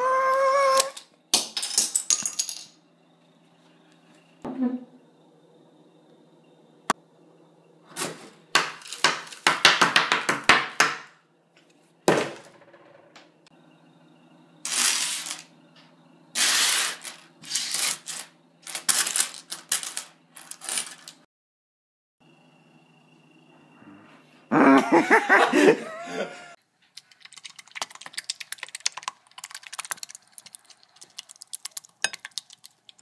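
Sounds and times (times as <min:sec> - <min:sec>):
coins clattering: 0:01.4 - 0:02.7, 0:14.7 - 0:15.5, 0:16.4 - 0:21.2
dry spaghetti snapping: 0:27.0 - 0:33.0.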